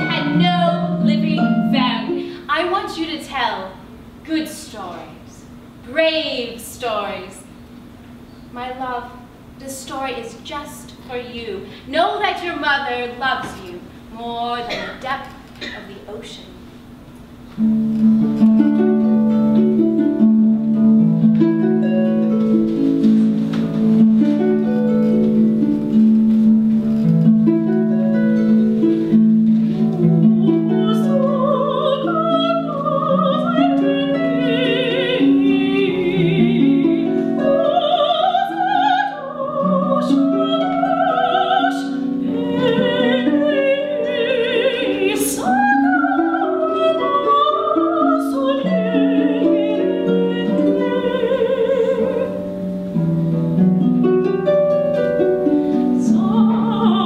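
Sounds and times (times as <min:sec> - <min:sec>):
harp plucked notes: 0:00.0 - 0:02.5, 0:17.6 - 0:57.0
soprano singing with vibrato: 0:00.0 - 0:07.5, 0:30.2 - 0:52.6, 0:55.9 - 0:57.0.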